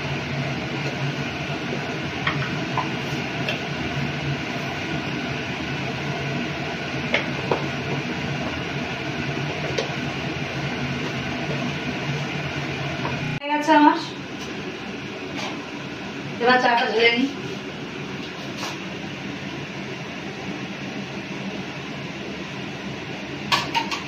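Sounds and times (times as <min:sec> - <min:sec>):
gas stove burner rushing: 0:00.0 - 0:13.4, 0:23.0 - 0:24.0.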